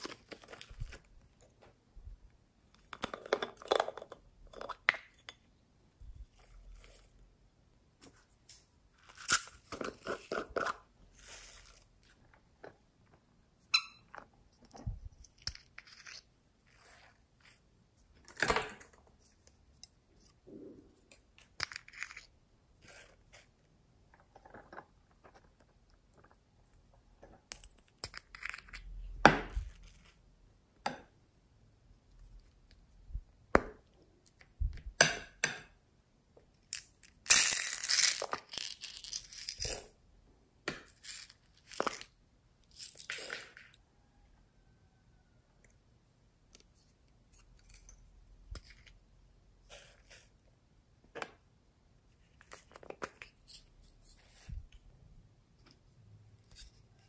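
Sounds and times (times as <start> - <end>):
beads rattling: 36.7 - 39.9, 40.9 - 43.8.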